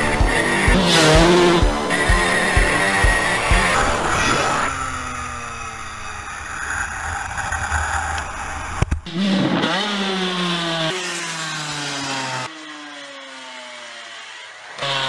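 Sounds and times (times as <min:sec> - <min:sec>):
rushing noise: 0:00.0 - 0:08.8
dirt bike engine winding down: 0:00.0 - 0:15.0.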